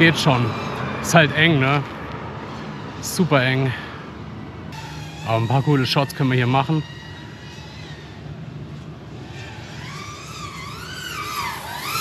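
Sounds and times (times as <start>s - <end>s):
quadcopter motors whining: 0.0s - 12.0s.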